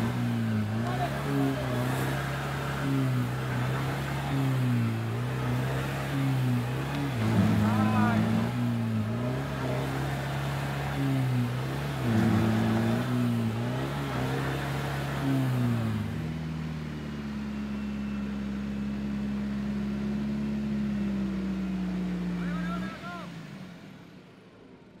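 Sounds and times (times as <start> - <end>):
engine revving and idling: 0.0 - 25.0.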